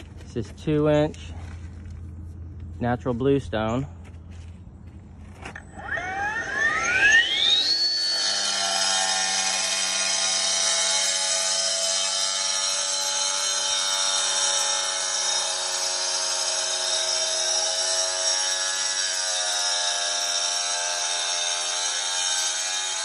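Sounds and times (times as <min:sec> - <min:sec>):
saw cutting through stone: 0:05.6 - 0:23.0.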